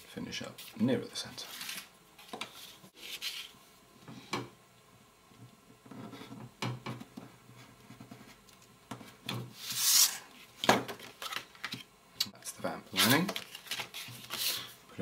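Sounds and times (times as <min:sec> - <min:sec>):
craft knife scraping through card: 0:09.6 - 0:10.2
card rustling: 0:12.9 - 0:14.7.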